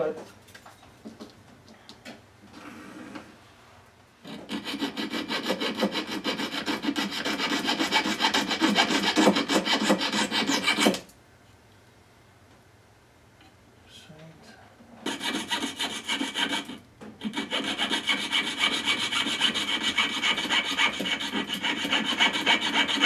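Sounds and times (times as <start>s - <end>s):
fine saw cutting metal: 4.4s - 11.0s, 15.1s - 23.0s.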